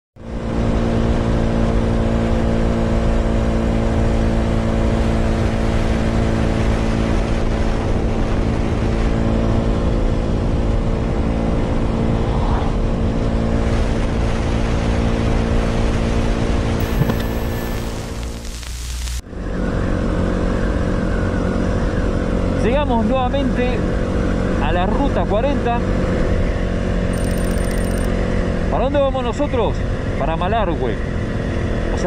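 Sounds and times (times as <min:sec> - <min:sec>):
wind and road noise: 0:00.3 - 0:22.6.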